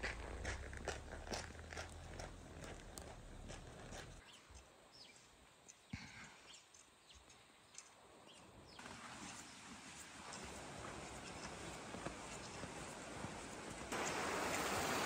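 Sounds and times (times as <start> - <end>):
footsteps crunching in snow: 0.0 - 4.2.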